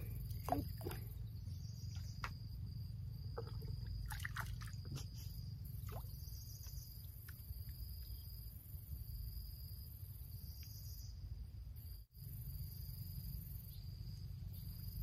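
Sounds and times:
small water splashes: 0.0s - 1.2s, 3.3s - 7.4s
high insect drone: 0.0s - 15.0s.

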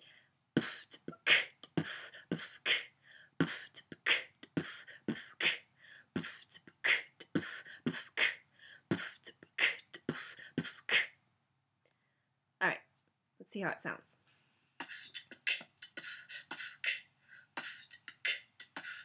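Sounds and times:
woman beatboxing: 0.6s - 5.6s, 6.2s - 11.1s, 14.8s - 17.0s, 17.6s - 19.0s.

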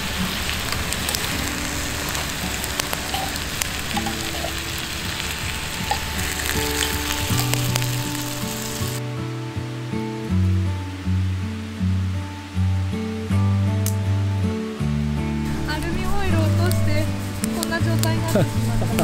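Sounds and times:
food sizzling in a pan: 0.0s - 9.0s, 15.4s - 19.0s
soft background music: 0.0s - 19.0s.

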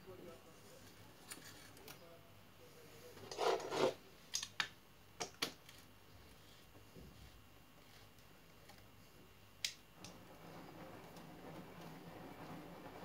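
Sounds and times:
metal scraping on metal: 3.2s - 4.0s, 10.0s - 13.0s.

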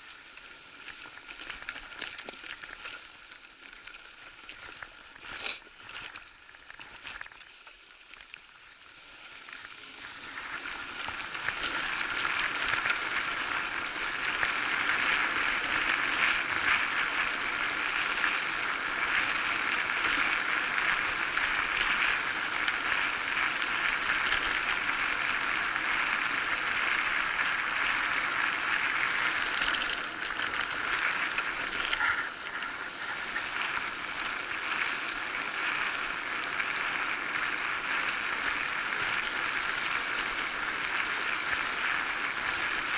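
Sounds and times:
bike clicks and rattles: 0.0s - 42.9s
tyre and wind noise: 9.7s - 42.9s.

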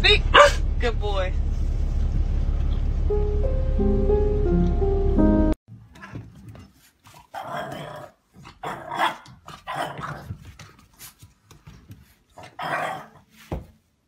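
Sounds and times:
puppy growling: 6.0s - 10.4s, 12.4s - 13.2s.

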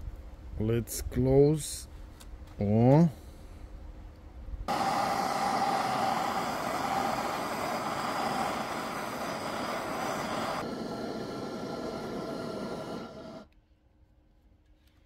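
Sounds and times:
welding arc crackling: 4.7s - 13.5s.

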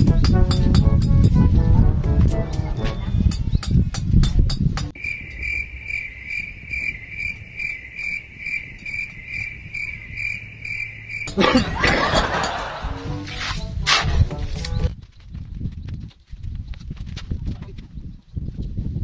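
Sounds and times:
cricket chirping: 5.0s - 11.7s.

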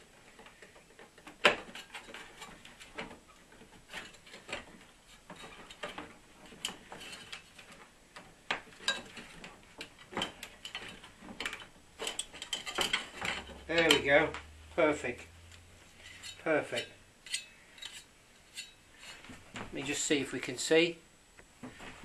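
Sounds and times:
clicks and knocks of parts: 0.2s - 14.1s.

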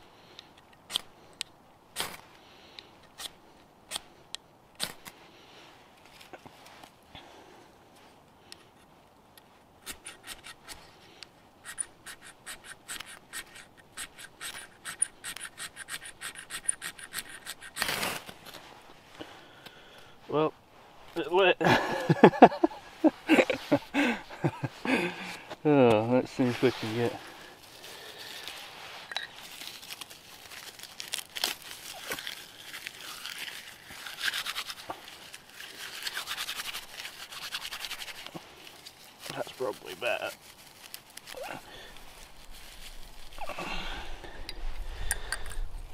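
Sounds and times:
striker scraping fire steel: 9.8s - 19.0s, 24.6s - 43.5s.

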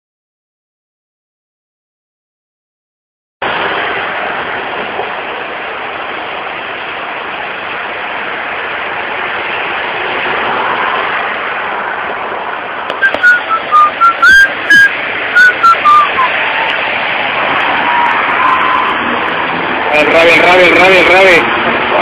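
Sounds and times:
person whistling: 13.0s - 16.4s.

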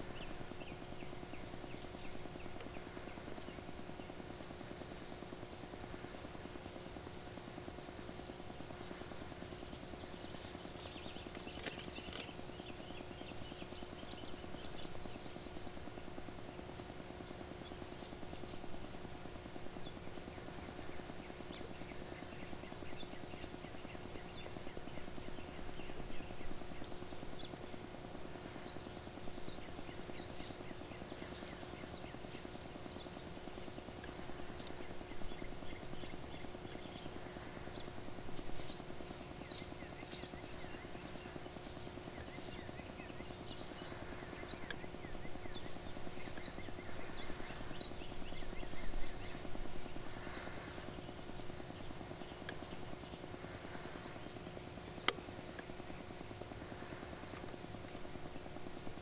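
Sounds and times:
faint high chirps and ticks: 0.0s - 59.0s
steady low hum: 0.0s - 59.0s.

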